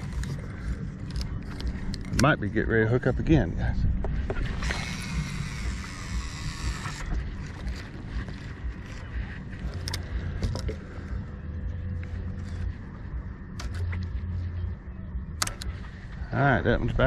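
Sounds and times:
fishing reel whirring: 0.0 - 2.2, 4.5 - 10.8
rod and reel clicks: 0.0 - 3.0, 4.3 - 10.8, 13.5 - 14.2, 15.3 - 16.0
low wind rumble: 0.0 - 17.0.

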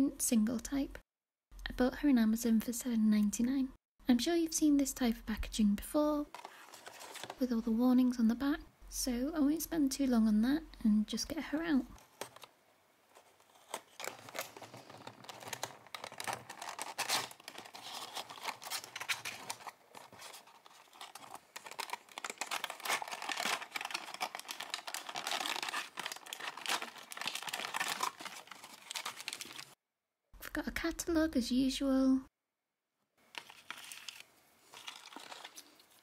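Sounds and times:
cardboard tearing and crinkling: 6.4 - 7.4, 13.2 - 29.8, 33.4 - 35.8.

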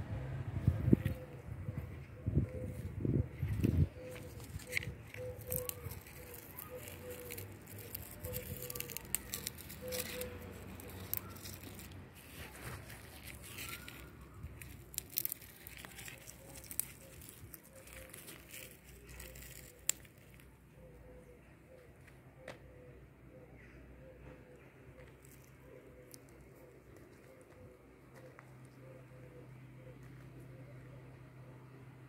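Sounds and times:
clicks crackles and rustles: 2.7 - 20.6, 25.0 - 28.8.

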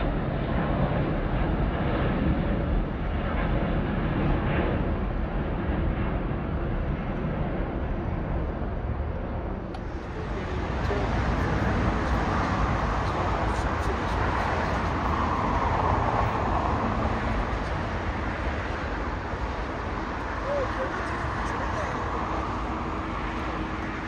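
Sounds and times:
jet aircraft rumble: 0.0 - 24.0
road traffic: 9.4 - 24.0.

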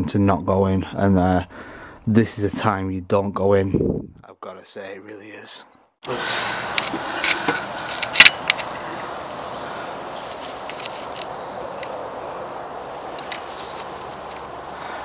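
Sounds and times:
background hiss: 4.6 - 15.0.

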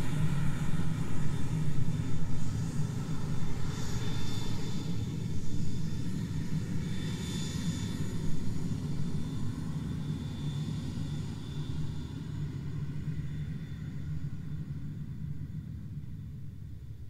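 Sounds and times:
airplane engines droning: 0.0 - 17.0.

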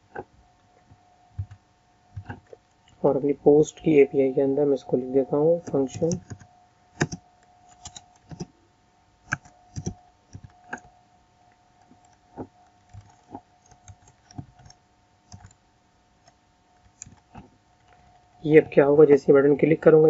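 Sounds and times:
faint steady tone: 0.0 - 20.0
keyboard key clicks: 9.3 - 10.9.

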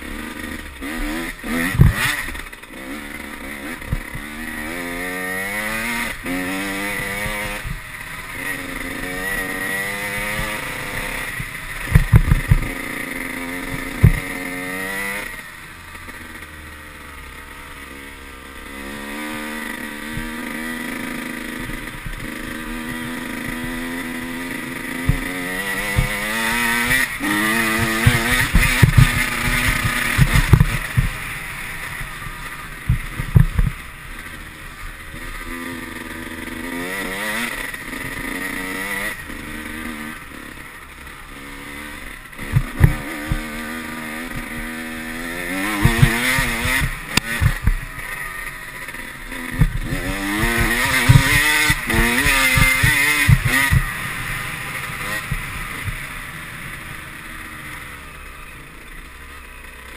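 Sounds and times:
dirt bike engine revving: 0.0 - 59.9
bike knocking over bumps: 11.9 - 12.7, 13.7 - 14.3, 27.8 - 31.2, 42.4 - 43.4, 45.7 - 47.9, 49.5 - 53.9.

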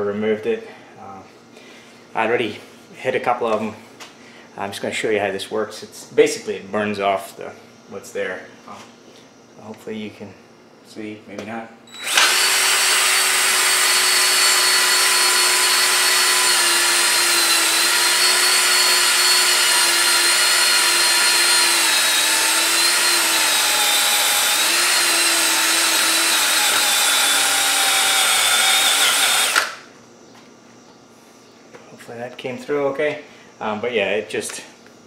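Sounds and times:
cordless drill whining: 11.9 - 29.8.

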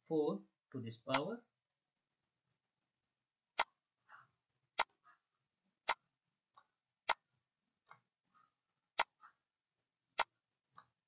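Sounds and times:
computer mouse clicking: 1.1 - 1.3, 3.6 - 3.8, 4.7 - 5.2, 5.8 - 8.1, 8.9 - 9.4, 10.1 - 11.0.

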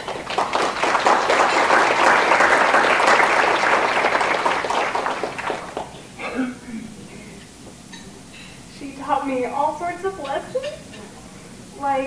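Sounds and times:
guests applauding: 0.0 - 6.0.

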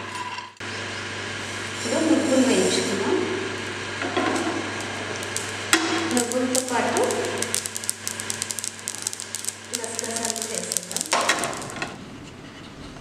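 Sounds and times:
roasting seeds crackling: 3.6 - 12.0.

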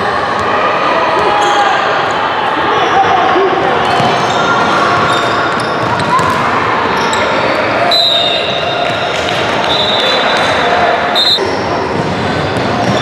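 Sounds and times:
referee's whistle blasts: 7.9 - 8.8, 9.7 - 10.5, 11.2 - 11.5.

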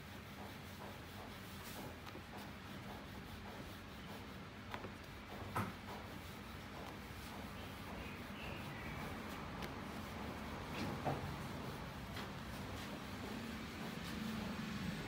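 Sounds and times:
rolling pin rolling over dough: 0.0 - 15.0.

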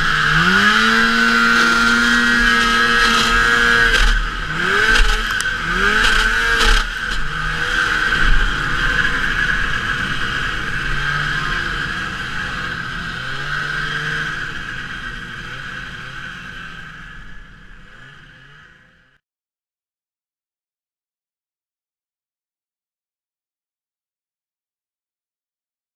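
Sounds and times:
snowmobile engine revving: 0.0 - 19.2.

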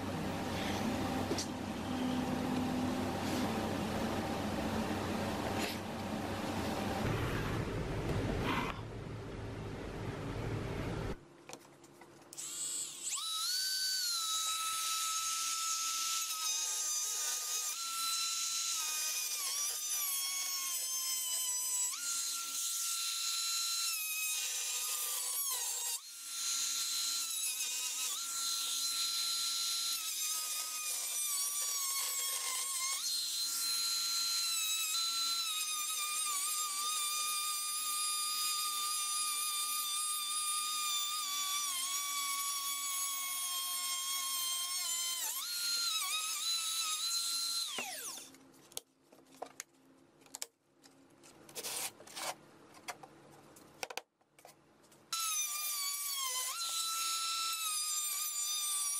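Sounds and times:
rotary tool cutting metal whine: 12.3 - 48.4, 55.1 - 58.9.

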